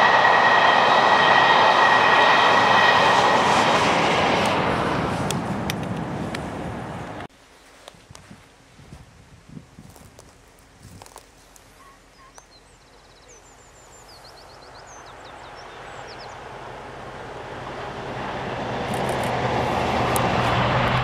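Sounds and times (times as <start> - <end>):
diesel locomotive passing: 0.0 - 7.3, 13.3 - 21.0
wheels rumbling on rail: 0.0 - 8.3, 13.4 - 21.0
small bird chirping: 11.7 - 16.4.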